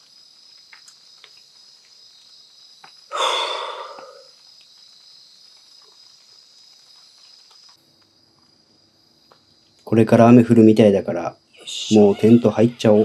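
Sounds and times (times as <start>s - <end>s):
crickets chirping: 0.0s - 13.0s
breathy exhale: 3.1s - 4.3s.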